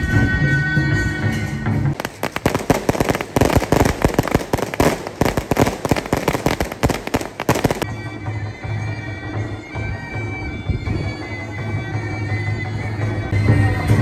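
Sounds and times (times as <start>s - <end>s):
firecrackers crackling: 2.0s - 7.9s
wind instrument music with drum: 2.0s - 13.9s.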